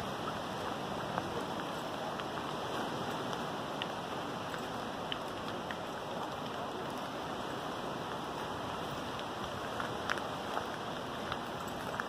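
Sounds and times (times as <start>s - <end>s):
light rain ticks: 0.0s - 12.0s
rain on foliage: 0.0s - 12.0s.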